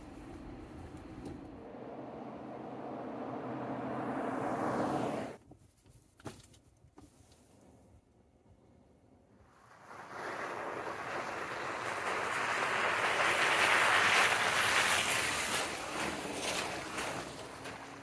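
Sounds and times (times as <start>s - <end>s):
tyres hissing through slush: 9.5s - 18.0s.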